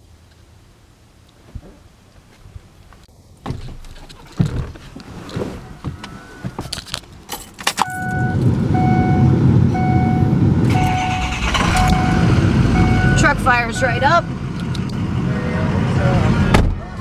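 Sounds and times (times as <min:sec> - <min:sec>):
keys clicking and rattling: 0:06.7 - 0:08.1
dashboard warning chime: 0:07.8 - 0:14.4
diesel engine starting and idling: 0:07.8 - 0:17.0.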